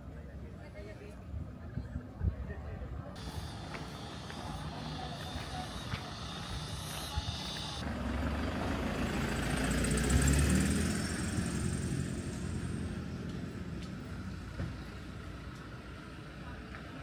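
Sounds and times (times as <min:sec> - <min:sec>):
vehicle passing by: 0:03.2 - 0:16.6.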